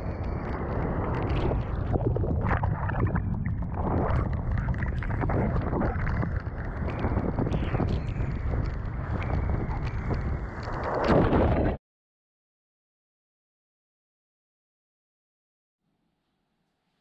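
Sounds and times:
wind rumble on microphone: 0:00.0 - 0:11.8.

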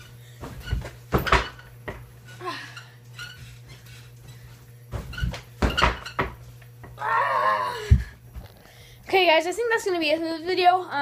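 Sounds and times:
bedsprings creaking: 0:00.0 - 0:07.1
bedding rustling: 0:03.1 - 0:06.5
thuds on mattress: 0:04.9 - 0:06.4.

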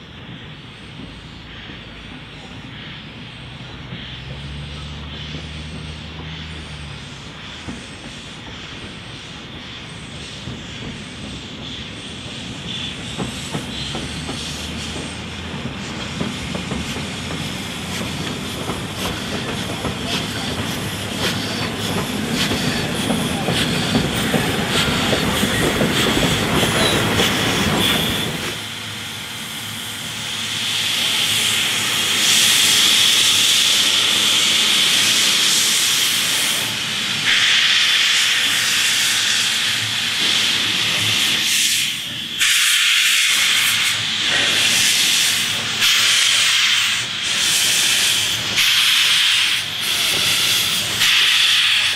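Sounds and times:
steam locomotive rumbling: 0:00.0 - 0:51.9
steam hissing: 0:00.4 - 0:51.9.

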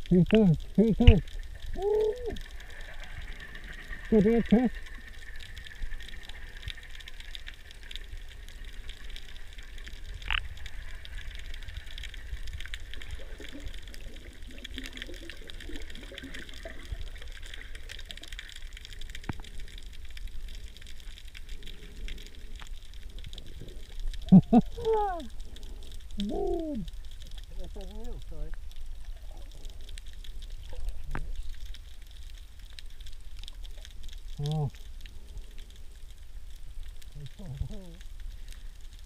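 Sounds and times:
faint ticks: 0:00.0 - 0:39.0
underwater rumble and hiss: 0:00.0 - 0:39.0
muffled voice-like sounds: 0:34.4 - 0:34.8, 0:37.2 - 0:38.0.

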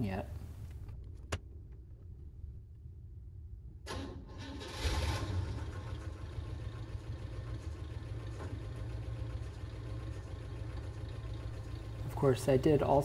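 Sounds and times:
pickup engine idling: 0:03.9 - 0:13.0.

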